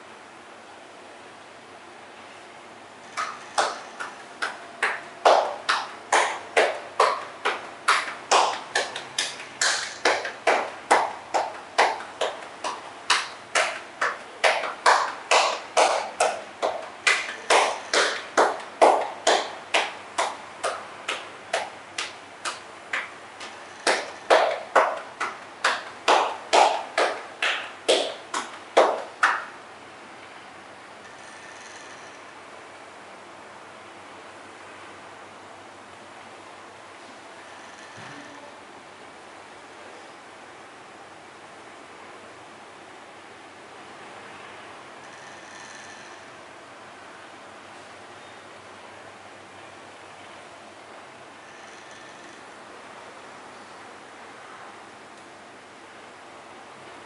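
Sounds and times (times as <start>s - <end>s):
hands slapping body rhythmically: 3.1s - 29.6s.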